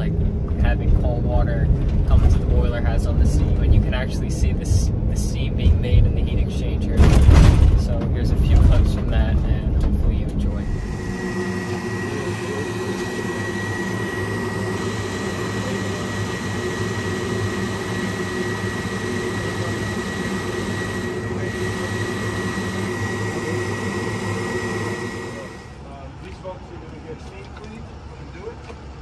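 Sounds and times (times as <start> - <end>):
low hum: 0.0 - 26.0
constant high whine: 0.0 - 29.0
burner blower roar: 10.3 - 25.9.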